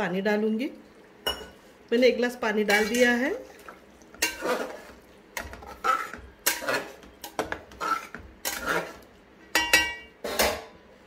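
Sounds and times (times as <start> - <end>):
metal ladle scraping a pot: 4.2 - 9.1.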